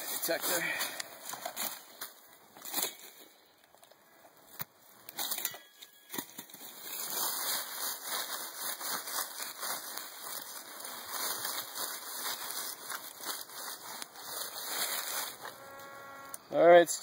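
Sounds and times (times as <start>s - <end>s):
dry leaves crackling: 0.0s - 3.3s, 6.1s - 16.3s.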